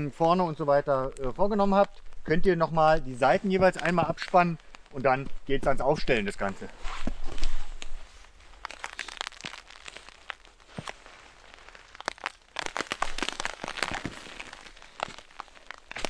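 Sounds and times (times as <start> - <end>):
crunching on snow: 1.4 - 16.0
tarp crinkling: 2.7 - 5.2, 5.9 - 16.0.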